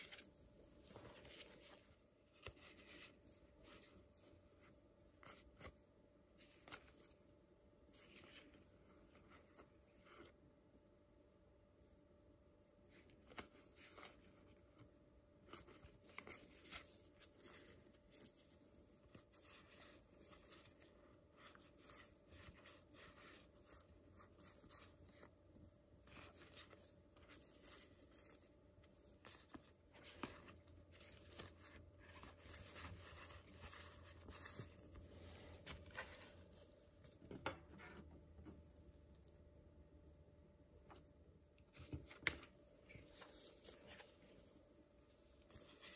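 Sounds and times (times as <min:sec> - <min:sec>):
trading cards rustling and clicking: 0:26.0 - 0:38.0.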